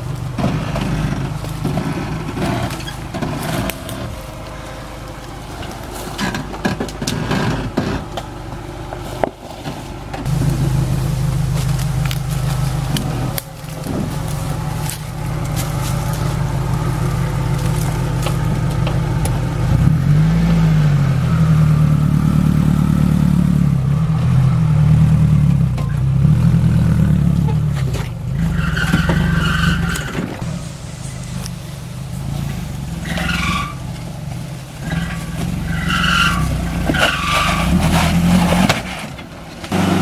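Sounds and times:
van engine under load: 0.0s - 40.0s
tyres knocking and scraping on rock: 6.0s - 8.3s, 34.8s - 39.8s.

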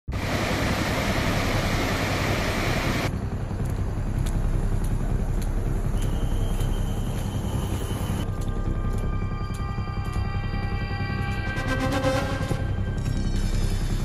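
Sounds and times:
light ticks on wet street: 3.1s - 7.4s, 8.2s - 11.5s.

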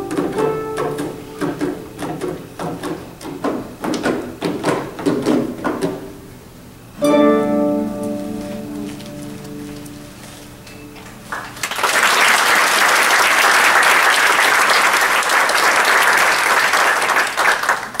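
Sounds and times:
harp chord ringing: 7.0s - 11.1s
audience applause: 11.2s - 18.0s.

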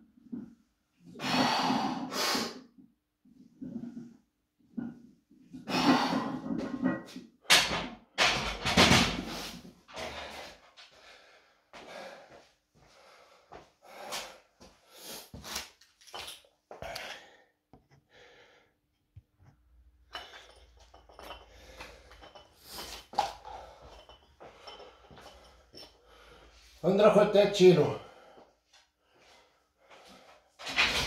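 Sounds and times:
man breathing hard: 9.2s - 15.6s, 16.8s - 18.8s, 21.2s - 26.8s, 28.0s - 30.5s.

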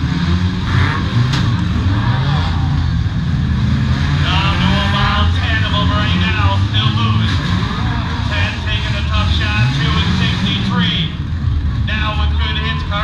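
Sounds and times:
car engines revving: 0.0s - 13.0s
crowd voices: 4.2s - 13.0s.

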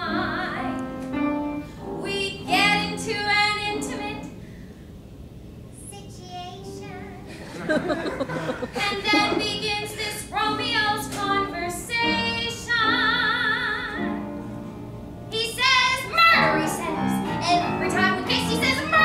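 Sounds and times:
woman singing: 0.0s - 0.8s, 8.6s - 14.2s, 15.3s - 19.0s.

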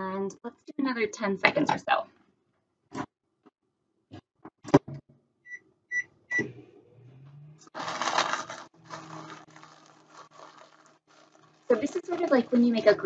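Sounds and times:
plastic bag crinkling: 7.8s - 13.0s.

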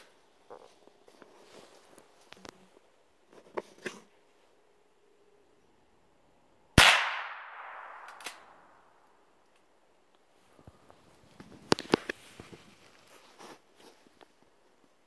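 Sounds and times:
rifle shot: 6.8s - 8.8s.

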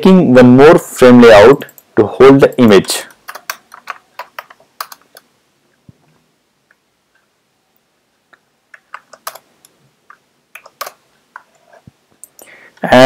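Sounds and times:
keyboard keystrokes: 3.1s - 5.2s, 8.7s - 9.5s, 10.6s - 11.0s.

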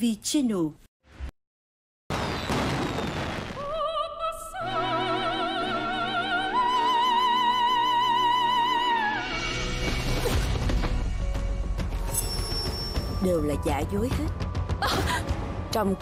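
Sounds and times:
operatic high voice singing: 3.6s - 9.3s.

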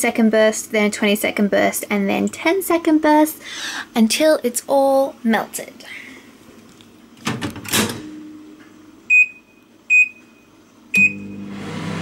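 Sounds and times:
microwave hum and fan: 7.2s - 12.0s
keypad beeps: 9.1s - 11.3s.

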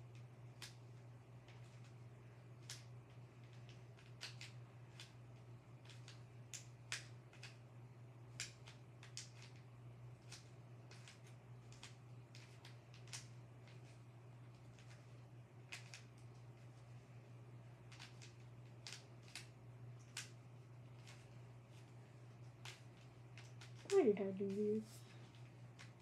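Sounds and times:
puzzle cube clicks: 2.6s - 5.2s, 5.8s - 7.6s, 8.3s - 9.6s, 10.2s - 15.1s, 15.7s - 16.7s, 17.9s - 21.8s, 22.5s - 26.0s.

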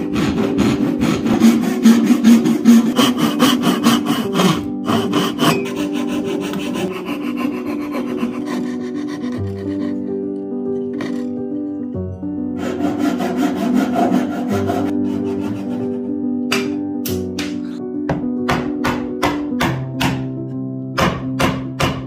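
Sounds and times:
coping saw cutting: 0.0s - 10.2s, 12.6s - 16.0s
saw rasping through wood: 0.0s - 10.2s, 10.8s - 11.4s, 12.6s - 16.1s.

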